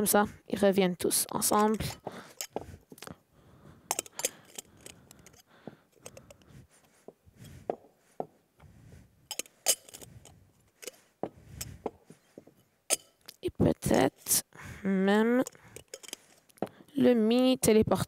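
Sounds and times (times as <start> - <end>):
soft handling rustle: 1.3 - 14.1, 15.4 - 17.0
metal cups clinking: 1.6 - 2.6, 3.9 - 6.4, 9.3 - 10.1, 12.9 - 13.4, 15.4 - 16.4.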